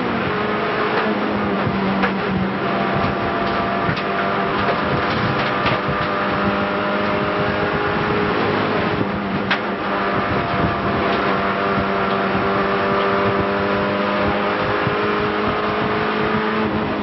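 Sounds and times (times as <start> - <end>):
car engine at high revs: 0.0 - 17.0
road and wind noise: 0.0 - 17.0.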